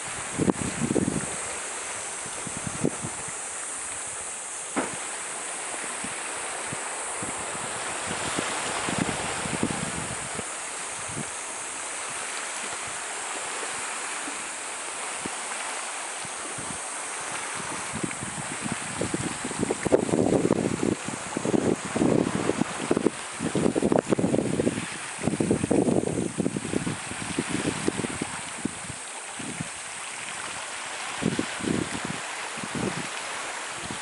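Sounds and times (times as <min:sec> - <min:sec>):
wind buffeting microphone: 0:00.0 - 0:13.1, 0:16.2 - 0:34.0
sea water washing on rocks: 0:00.0 - 0:34.0
sharp tap: 0:04.8 - 0:05.0.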